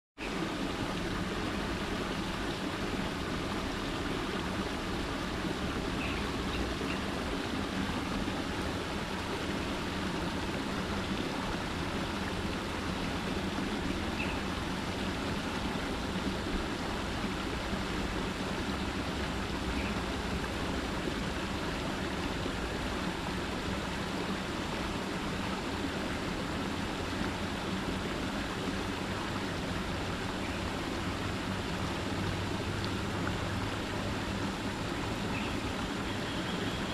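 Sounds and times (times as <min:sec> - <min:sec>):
water splashing down cascade: 0:00.2 - 0:36.9
faint bird chirps: 0:14.2 - 0:14.5.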